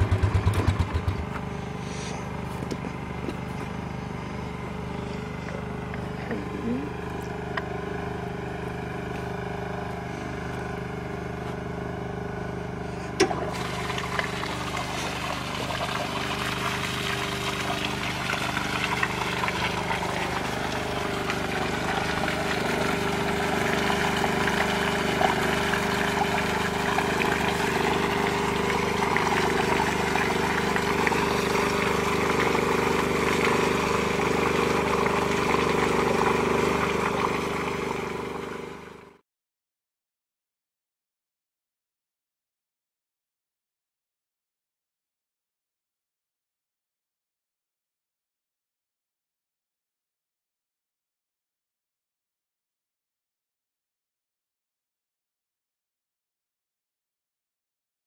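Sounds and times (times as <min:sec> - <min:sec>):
engine running: 0:00.0 - 0:39.2
water rushing and splashing on ground: 0:13.5 - 0:39.0.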